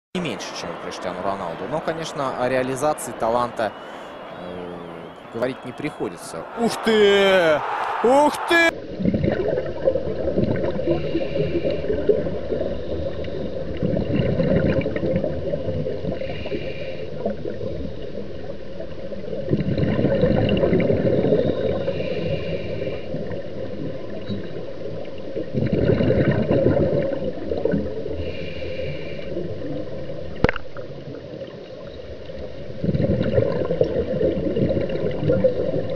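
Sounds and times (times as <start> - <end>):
gurgling exhaled bubbles: 8.9 - 16.6, 19.2 - 22.4, 25.4 - 28.2, 32.7 - 35.9.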